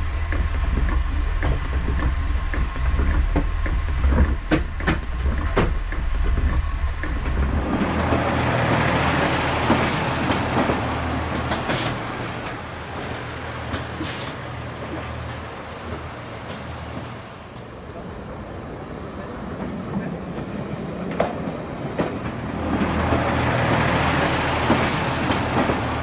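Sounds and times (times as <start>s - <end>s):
wheels clicking on track: 0.0s - 18.1s, 19.1s - 26.0s
diesel railcar engine hum: 0.0s - 26.0s
diesel engine idling: 7.2s - 14.8s
air brakes hissing: 11.4s - 12.6s, 13.7s - 14.6s.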